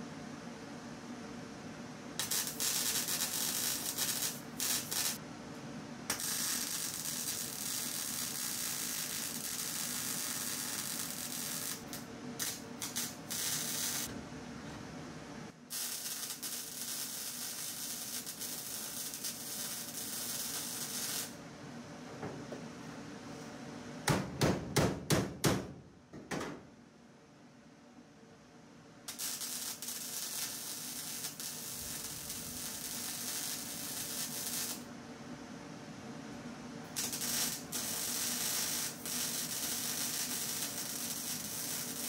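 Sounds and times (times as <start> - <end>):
faint steady hum: 0.0 - 24.2, 25.8 - 42.0
welding arc crackling and hissing: 2.2 - 5.2, 6.1 - 14.1, 15.7 - 21.4, 29.1 - 34.9, 36.9 - 42.0.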